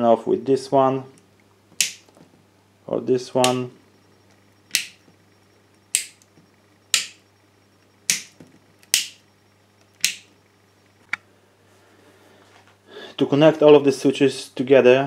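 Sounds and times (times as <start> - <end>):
light switch clicks: 1.8 - 2.0, 4.7 - 5.0, 5.9 - 6.3, 6.9 - 7.2, 8.1 - 9.2, 9.9 - 10.3.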